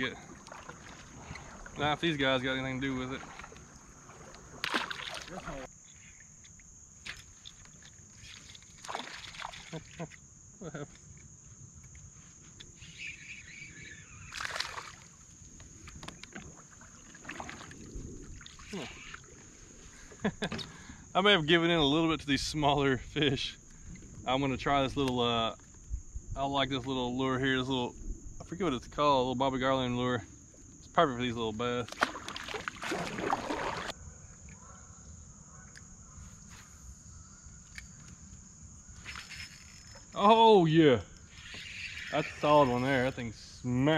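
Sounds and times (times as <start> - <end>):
insects buzzing: 0.0 - 43.9
outdoor water ambience: 0.0 - 43.9
short water splash: 3.0 - 5.7, 8.8 - 10.0, 14.3 - 15.2, 16.5 - 19.0, 31.9 - 33.9.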